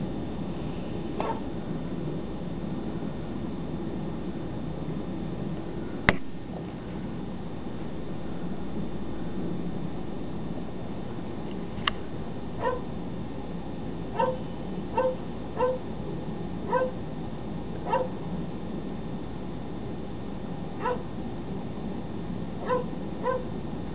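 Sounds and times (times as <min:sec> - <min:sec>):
dog barking: 0:01.2 - 0:01.4, 0:12.6 - 0:12.9, 0:14.2 - 0:15.8, 0:16.7 - 0:17.0, 0:17.8 - 0:18.2, 0:20.8 - 0:21.1, 0:22.6 - 0:23.5.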